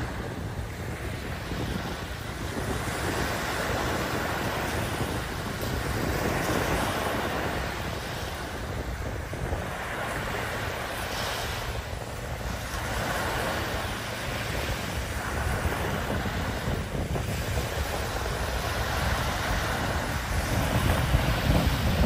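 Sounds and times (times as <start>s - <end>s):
small waves breaking on sand: 0.0s - 22.0s
wind buffeting microphone: 0.0s - 22.0s.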